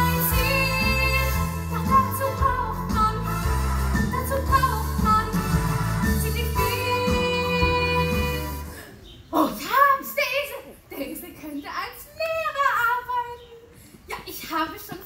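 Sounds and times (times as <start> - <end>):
instrumental accompaniment with bass: 0.0 - 8.8
woman singing: 0.0 - 8.8.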